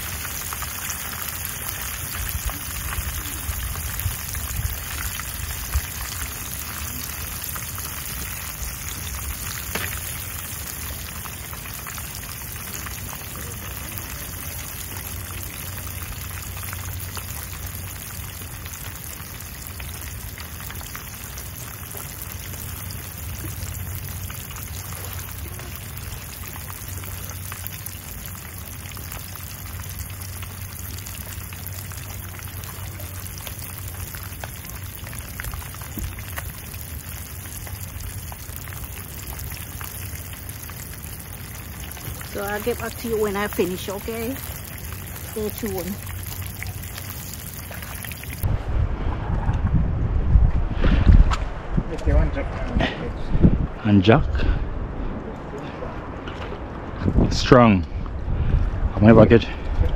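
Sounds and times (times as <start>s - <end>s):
fish frying in hot oil: 0.0s - 48.5s.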